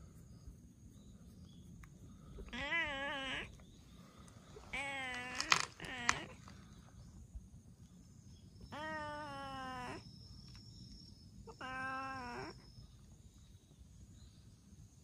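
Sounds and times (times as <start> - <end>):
cat meowing: 2.4 - 3.5, 4.7 - 6.4, 8.7 - 10.0, 11.5 - 12.6.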